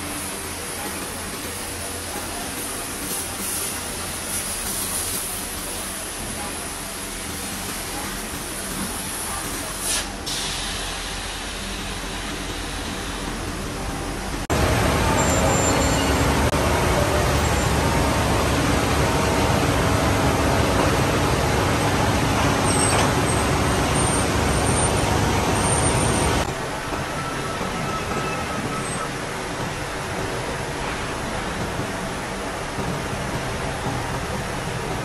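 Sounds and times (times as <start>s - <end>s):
brief hiss: 9.6s - 12.1s.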